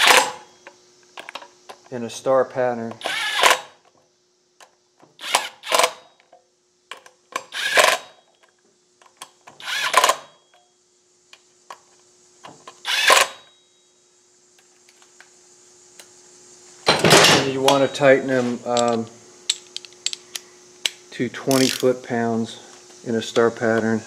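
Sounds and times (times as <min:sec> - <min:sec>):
cordless impact wrench bursts: 0:00.0 - 0:00.4, 0:03.0 - 0:03.7, 0:05.2 - 0:06.1, 0:07.5 - 0:08.2, 0:09.6 - 0:10.3, 0:12.8 - 0:13.4.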